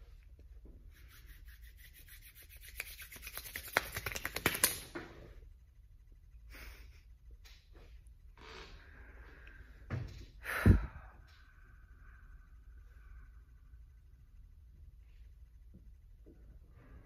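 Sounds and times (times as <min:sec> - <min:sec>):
hands rubbing together: 0:00.9 - 0:04.9
palms smacking: 0:02.8 - 0:05.0.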